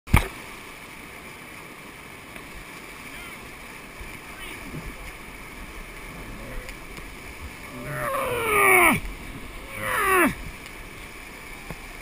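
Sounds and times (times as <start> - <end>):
whitewater rapids rushing: 0.6 - 12.0
people yelling: 7.6 - 10.4.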